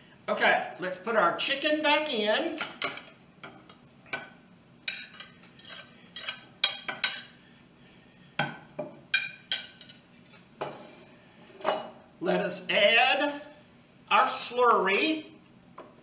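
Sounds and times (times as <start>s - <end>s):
metal fork clinking on plate and pot: 4.9s - 7.3s, 9.2s - 10.0s.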